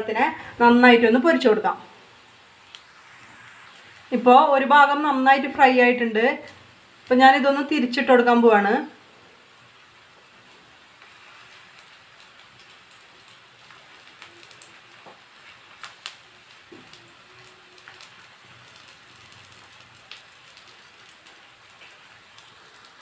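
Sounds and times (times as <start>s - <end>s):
slices sizzling in frying pan: 0.1s - 23.0s.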